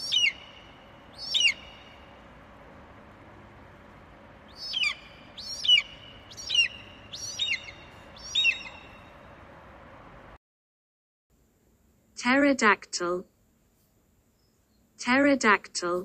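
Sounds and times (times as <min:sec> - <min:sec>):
shrill bird-like calls: 0:00.0 - 0:02.2, 0:04.5 - 0:09.3
faint hiss: 0:11.3 - 0:15.1.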